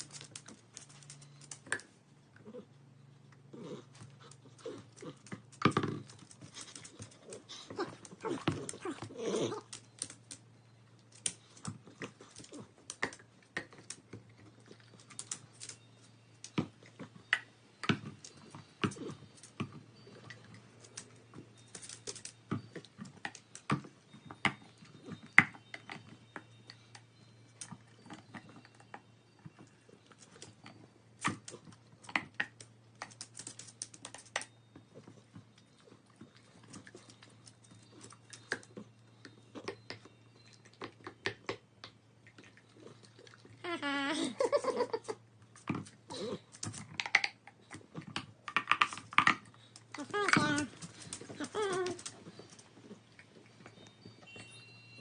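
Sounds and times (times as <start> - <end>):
dog chewing rubber toy: 45.6 - 54.4.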